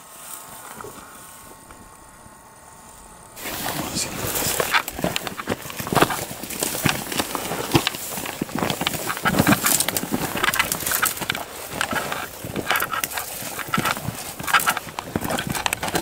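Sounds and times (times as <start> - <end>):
brush rustling against clothing: 3.4 - 16.0
footsteps crunching on gravel: 3.4 - 16.0.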